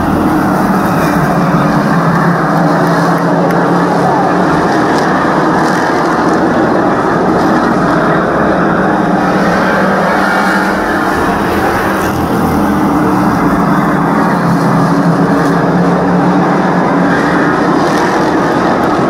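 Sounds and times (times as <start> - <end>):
race car engines roaring: 0.0 - 19.0.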